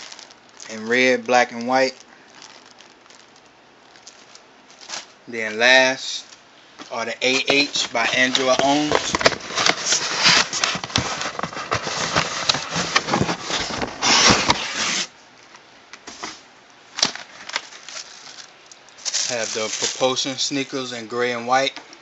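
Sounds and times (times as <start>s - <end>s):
cardboard scraping and rustling: 7.2s - 15.1s.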